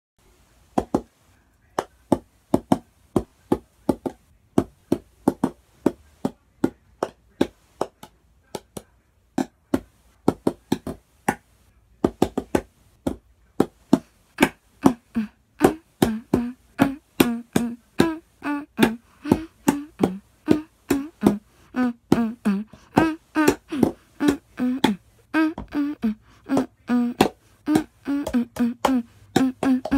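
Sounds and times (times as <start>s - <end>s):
deep thumps on cups: 0.7s - 29.9s
hollow plastic cup taps: 0.8s - 1.1s, 1.8s - 15.0s, 18.8s - 21.4s.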